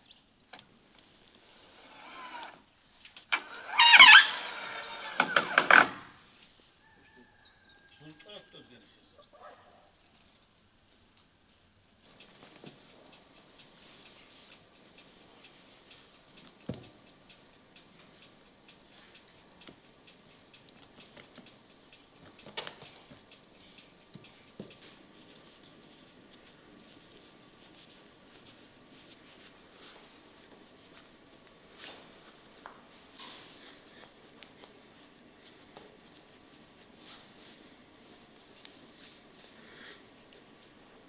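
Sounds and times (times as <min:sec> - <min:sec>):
wood fire crackling in stove: 0:00.0 - 0:05.3, 0:09.9 - 0:41.0
faint clicks and taps: 0:12.0 - 0:41.0.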